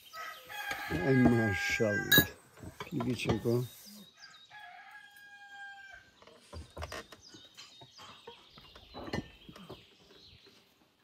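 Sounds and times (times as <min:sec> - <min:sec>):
birds chirping: 0:00.0 - 0:05.0, 0:05.8 - 0:11.0
rooster crowing: 0:00.1 - 0:02.2, 0:04.5 - 0:06.1.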